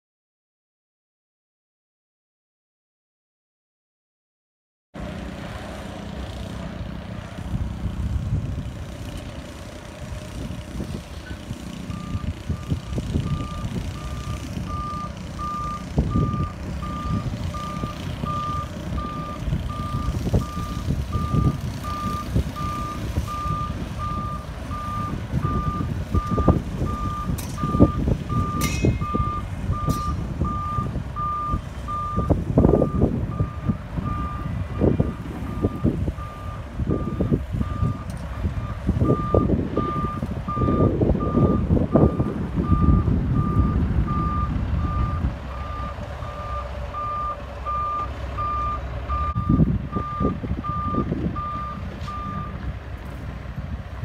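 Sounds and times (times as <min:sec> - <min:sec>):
diesel engine rumble: 0:05.0 - 0:54.0
truck reverse alarm beeping: 0:11.3 - 0:52.6.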